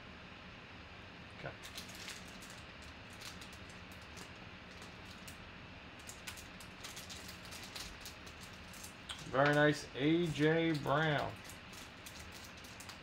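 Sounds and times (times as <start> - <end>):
faint steady hum: 0.0 - 13.0
plastic clicks and crinkles: 6.0 - 9.6, 10.7 - 13.0.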